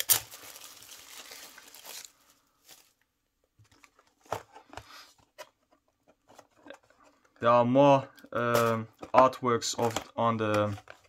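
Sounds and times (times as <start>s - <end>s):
plastic shrink wrap crinkling: 0.0s - 3.0s
faint handling sounds: 0.1s - 11.0s.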